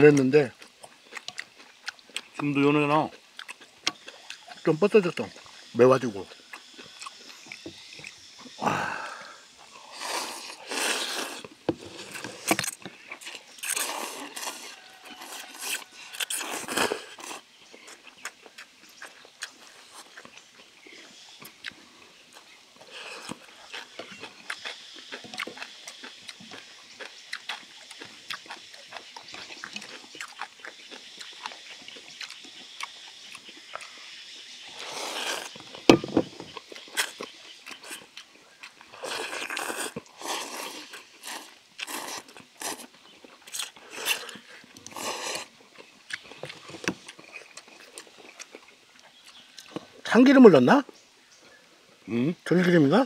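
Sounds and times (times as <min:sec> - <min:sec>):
wet chewing and lip-smacking: 0:00.1 - 0:02.5, 0:03.1 - 0:05.7, 0:06.3 - 0:08.6, 0:09.5 - 0:50.0
loud noodle slurps: 0:09.8 - 0:12.6, 0:13.6 - 0:17.4, 0:34.8 - 0:35.6, 0:39.0 - 0:42.9, 0:43.5 - 0:45.5.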